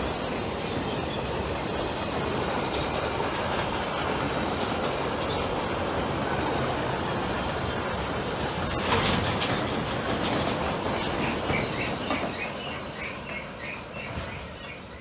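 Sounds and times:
freight train rolling on rails: 0.0 - 15.0.

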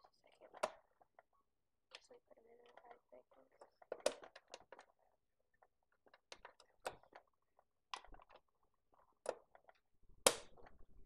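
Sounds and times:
plastic pieces clicking: 6.0 - 11.0.

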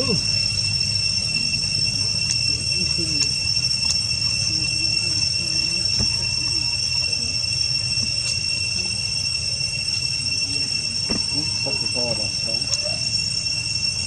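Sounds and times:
high insect drone: 0.0 - 14.0
faint distant voices: 4.2 - 13.2.

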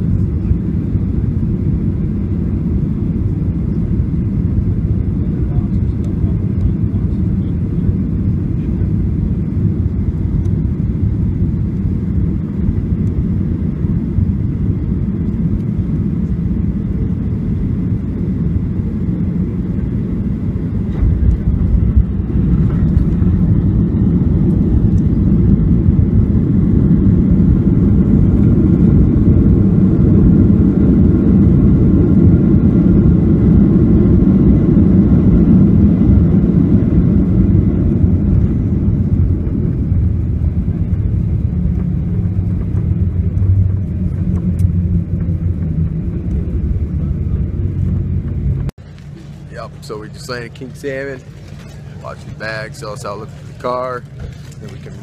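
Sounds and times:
jet engines rumbling: 0.0 - 55.0
plane touchdown: 0.0 - 55.0.

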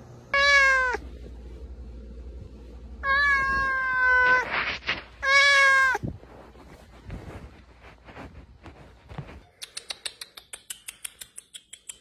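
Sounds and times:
cat meowing: 0.3 - 1.0, 3.0 - 4.6, 5.2 - 6.0.

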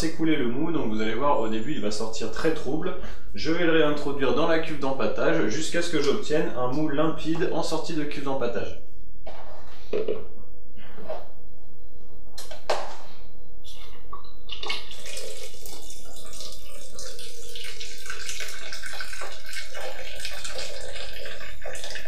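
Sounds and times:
liquid splashing into plastic bucket: 14.5 - 22.0.

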